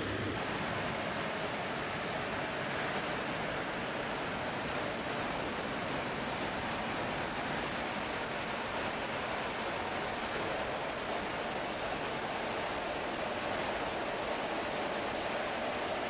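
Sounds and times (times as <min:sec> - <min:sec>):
rushing airflow: 0:00.0 - 0:02.5
turboprop engines: 0:00.0 - 0:07.6.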